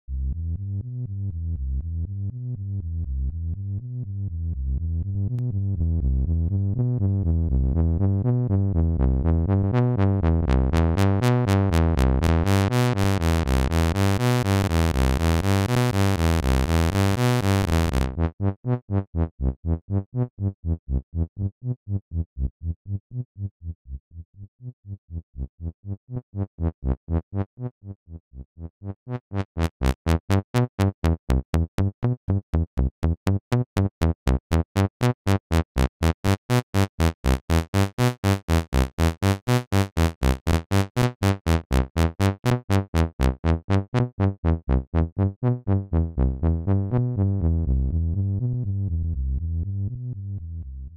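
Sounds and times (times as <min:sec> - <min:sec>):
electronic music with steady beat: 0:10.5 - 0:18.1.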